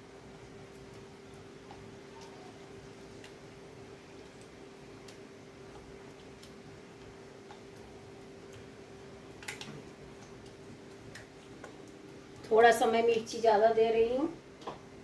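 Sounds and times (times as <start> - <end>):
faint clicks and taps: 0.7 - 2.5, 3.2 - 3.5, 4.3 - 8.8, 9.4 - 12.6, 14.6 - 14.9.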